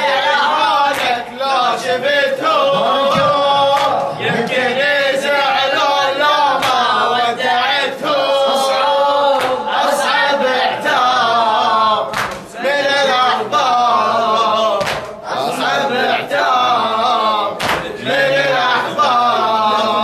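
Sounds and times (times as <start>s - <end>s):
man chanting a lament: 0.0s - 11.9s.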